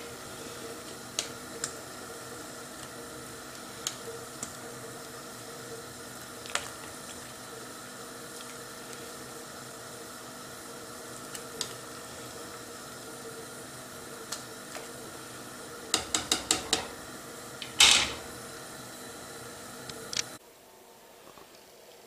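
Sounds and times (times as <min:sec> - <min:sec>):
pasta boiling in a pot: 0:00.0 - 0:22.0
spoon tapping metal pot: 0:15.9 - 0:16.9
pot and lid clatter: 0:17.6 - 0:18.3.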